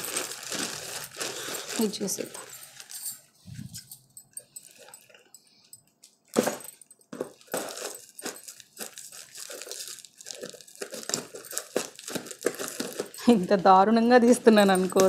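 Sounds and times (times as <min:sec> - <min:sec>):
plastic wrapping crinkling: 0:00.0 - 0:03.9, 0:06.0 - 0:15.0
scissors cutting plastic: 0:07.5 - 0:13.4.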